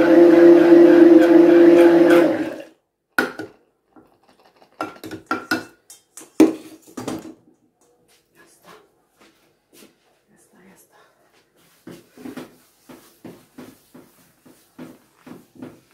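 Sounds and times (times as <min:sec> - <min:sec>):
immersion blender running: 0:00.0 - 0:02.7.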